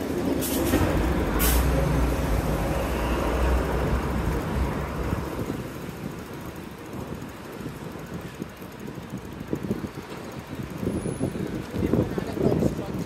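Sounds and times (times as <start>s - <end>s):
motor vehicle passing: 0.0s - 6.7s
city street traffic: 0.0s - 13.0s.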